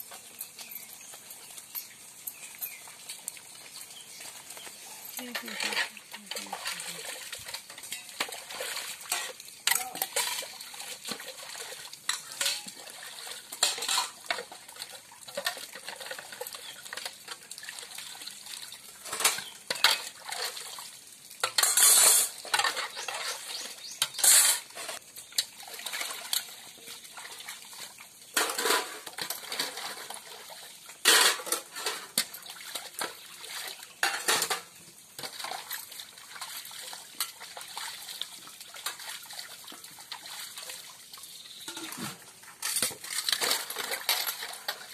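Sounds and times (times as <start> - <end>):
water splashing: 2.2 - 44.9
steel dishes clinking: 5.0 - 10.5, 12.1 - 12.8, 13.5 - 14.6, 19.0 - 20.6, 21.4 - 25.0, 28.4 - 30.1, 31.0 - 32.4, 34.0 - 35.4, 41.7 - 44.9.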